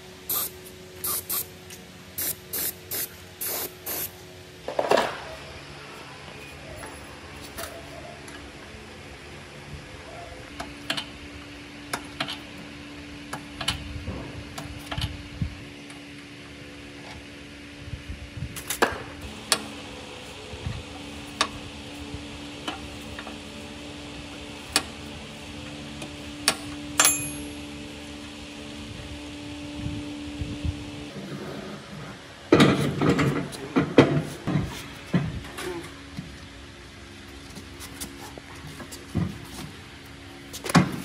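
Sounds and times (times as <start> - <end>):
metal clang ringing: 27.0 - 27.6.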